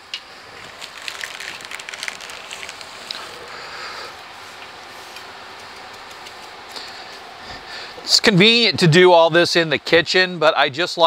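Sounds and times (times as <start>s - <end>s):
gloved hands rustling plastic bag: 0.5s - 7.1s.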